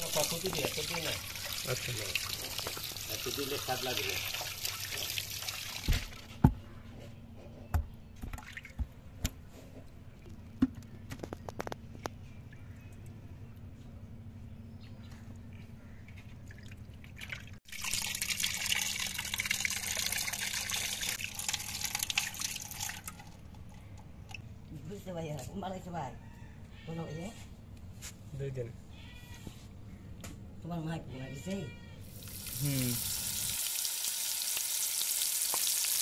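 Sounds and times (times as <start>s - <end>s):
water dripping: 0.0s - 6.2s, 16.5s - 24.4s, 32.1s - 36.0s
tap water running and splashing: 0.0s - 6.3s, 16.5s - 23.3s, 32.1s - 36.0s.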